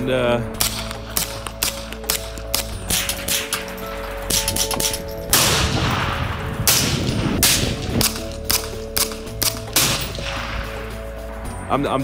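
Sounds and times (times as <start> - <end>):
background music: 0.0 - 12.0
sharp gunshots: 4.3 - 10.9.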